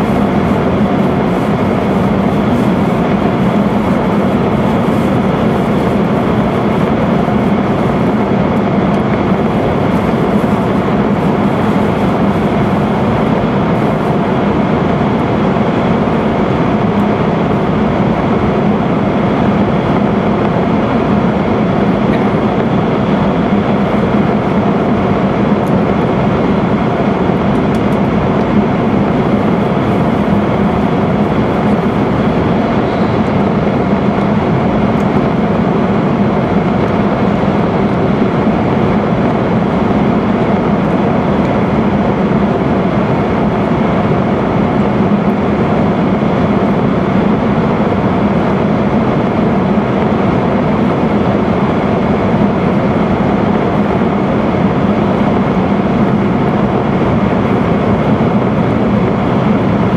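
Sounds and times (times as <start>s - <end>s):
train running through tunnel: 0.0s - 59.9s.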